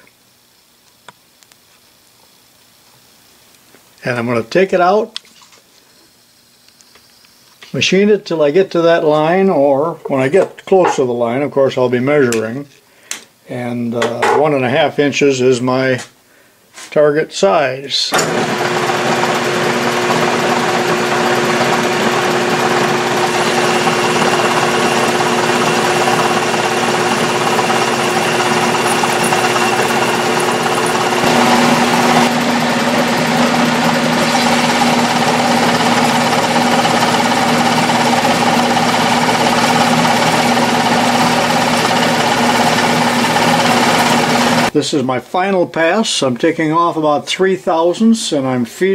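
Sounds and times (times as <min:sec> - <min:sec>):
metal lathe hum and whine: 0:18.2 - 0:44.7.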